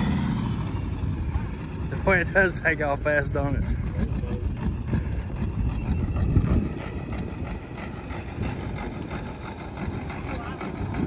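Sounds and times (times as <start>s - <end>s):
tractor diesel engine: 0.0s - 11.0s.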